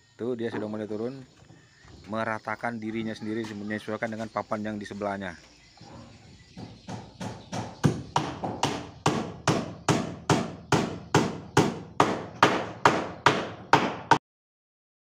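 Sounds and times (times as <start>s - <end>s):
hammer driving nails into wood: 6.6s - 14.2s.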